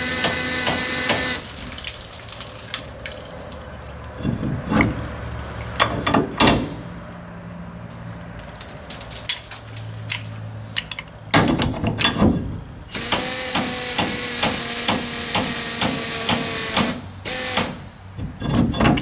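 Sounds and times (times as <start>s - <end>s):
metal clunks: 5.8s - 6.9s, 10.8s - 12.6s, 17.6s - 19.0s
pneumatic tool air hiss: 12.9s - 17.9s.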